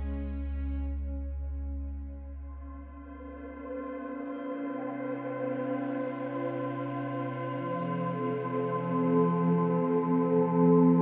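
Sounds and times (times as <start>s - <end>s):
deep low hum: 0.0s - 3.9s
ambient droning music: 0.0s - 11.0s.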